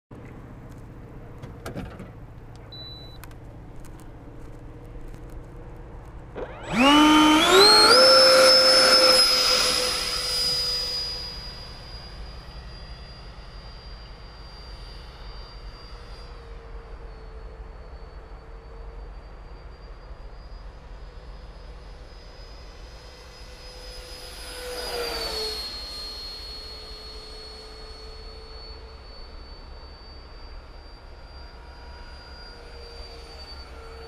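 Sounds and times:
electric ducted fan whine: 0.1s - 34.0s
short beep: 2.7s - 3.2s.

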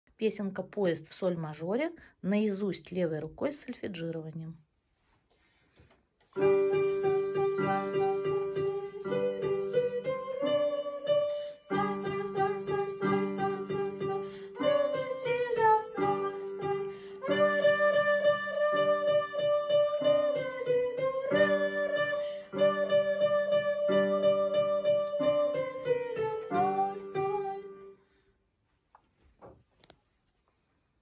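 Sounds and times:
child singing: 6.3s - 27.9s
electronic keyboard melody: 6.4s - 28.0s.

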